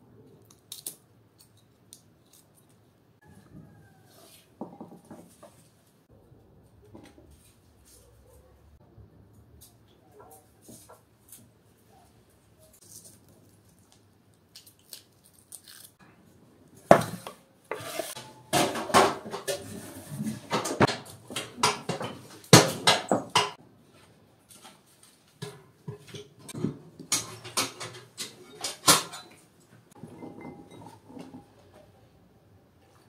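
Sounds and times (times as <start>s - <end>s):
utensils and firewood clattering: 16.9s - 23.6s, 25.4s - 32.0s.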